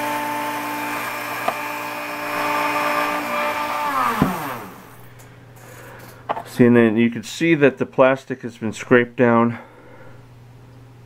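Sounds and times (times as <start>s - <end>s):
rotary tool whining: 0.0s - 5.1s.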